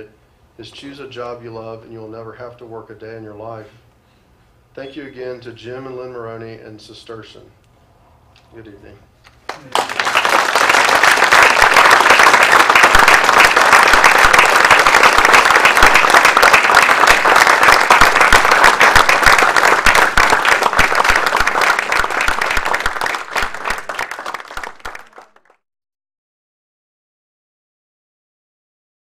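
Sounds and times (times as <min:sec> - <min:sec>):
audience applauding: 0:09.5 - 0:25.6.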